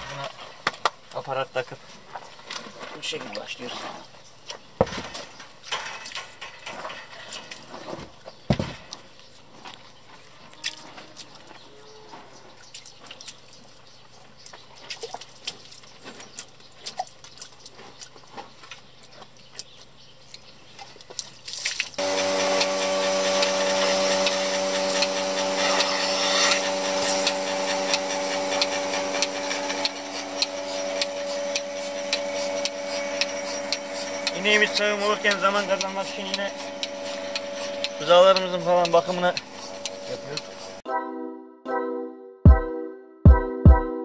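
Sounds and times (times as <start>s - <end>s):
vacuum pump humming: 22.0s - 40.8s.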